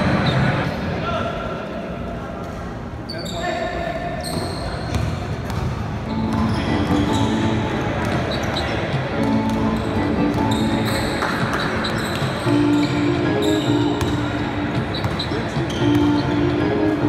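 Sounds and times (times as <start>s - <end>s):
sneakers squeaking: 0.0s - 0.7s, 3.0s - 17.0s
basketball dribbling: 13.6s - 16.4s.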